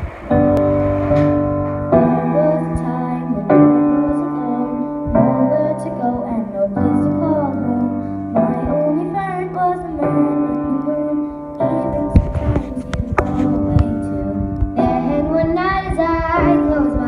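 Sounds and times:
piano chords: 0.0 - 17.0.

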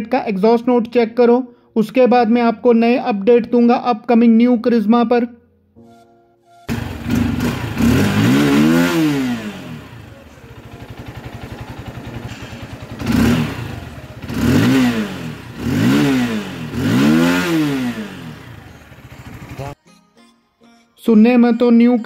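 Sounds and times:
motorcycle engine revving: 6.6 - 19.8.

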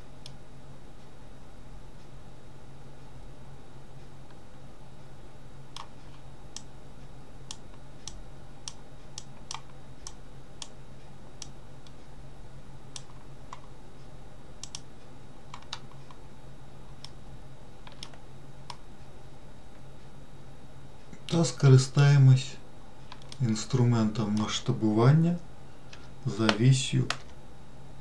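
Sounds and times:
steady low hum: 0.0 - 28.0
mouse and keyboard clicking: 7.5 - 10.8, 14.6 - 14.9, 15.5 - 16.2, 17.8 - 18.8, 23.1 - 23.4.

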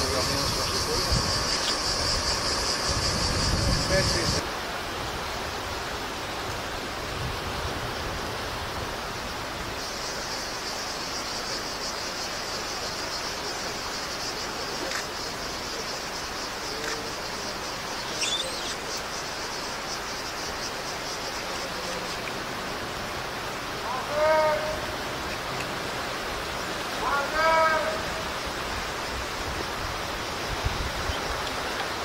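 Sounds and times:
cicadas buzzing: 0.0 - 32.0
steady hiss: 0.0 - 32.0.

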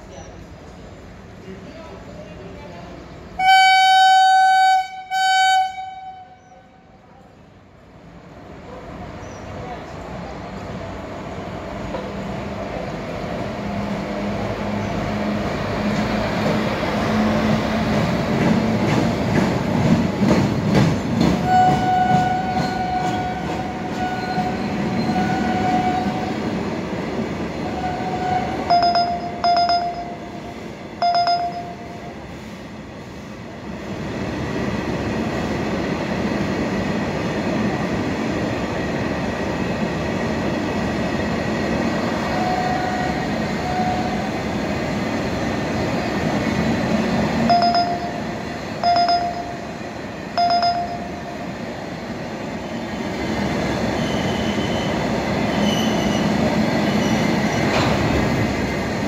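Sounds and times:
train wheels rumbling on track: 0.0 - 59.0
high steady horn tone: 3.4 - 6.4.

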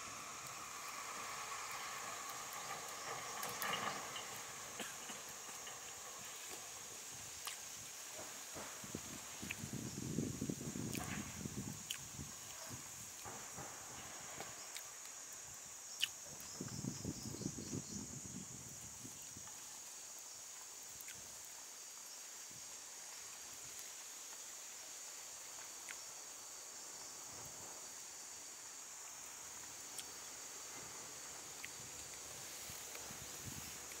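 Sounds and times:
high insect chorus: 0.0 - 34.0.

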